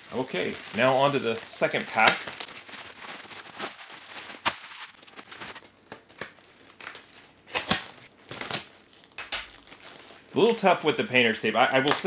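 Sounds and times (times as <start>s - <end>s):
sharp plastic crackles: 0.0s - 10.7s, 11.6s - 12.0s
plastic crinkling and tearing: 0.0s - 12.0s.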